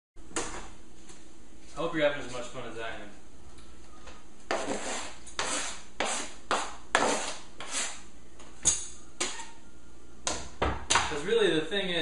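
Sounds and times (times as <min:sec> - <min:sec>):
knife scraping cutting board: 0:04.5 - 0:08.0.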